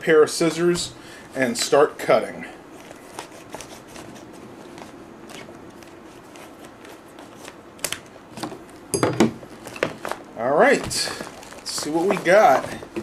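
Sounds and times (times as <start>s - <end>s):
plastic rustling: 2.7s - 13.0s.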